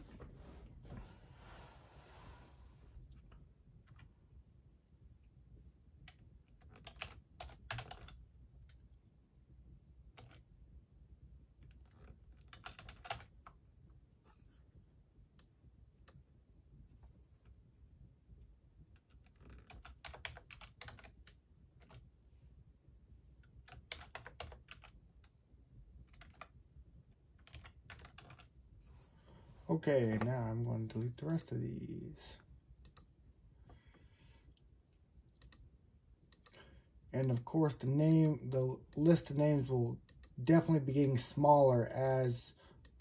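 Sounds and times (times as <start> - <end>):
faint typing on keyboard: 5.6 - 9.0, 10.1 - 10.6, 11.6 - 13.6, 18.8 - 22.2, 23.4 - 29.3, 30.0 - 31.9, 32.8 - 34.6, 35.3 - 43.0.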